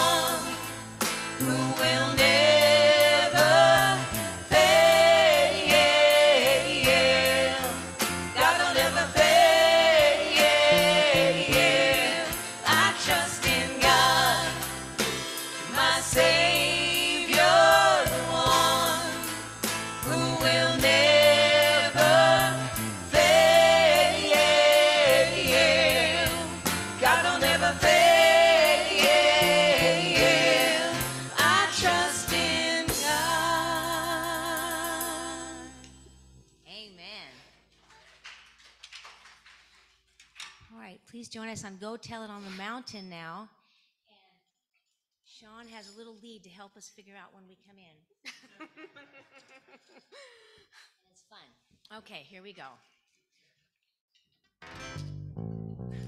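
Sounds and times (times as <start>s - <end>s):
woman singing: 0.0s - 0.6s, 1.4s - 7.8s, 8.4s - 14.6s, 15.7s - 22.3s, 25.6s - 35.8s
worship band playing: 0.0s - 36.0s.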